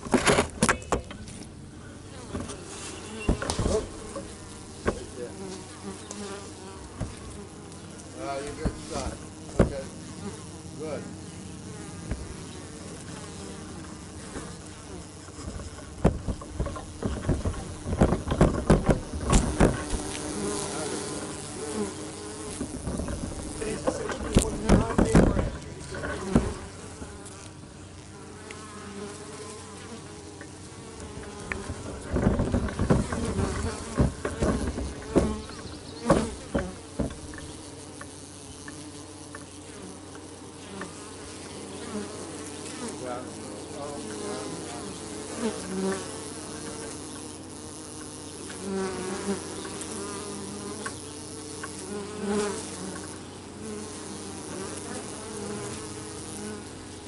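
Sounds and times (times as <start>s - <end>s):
bees buzzing: 0.0s - 57.0s
loud knocks: 9.5s - 9.8s, 15.5s - 20.1s, 22.5s - 25.6s, 26.2s - 26.6s, 31.5s - 37.5s.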